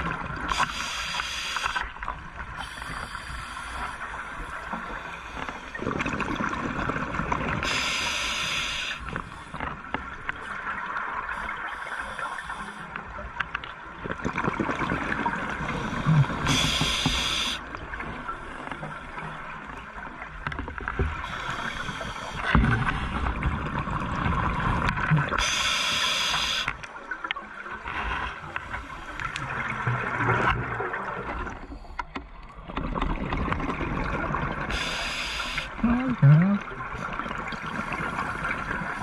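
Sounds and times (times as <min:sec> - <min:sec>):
exhaled air bubbling underwater: 0:00.0 - 0:39.0
regulator hisses: 0:07.7 - 0:09.0, 0:16.5 - 0:17.6, 0:25.4 - 0:26.7, 0:34.7 - 0:35.8.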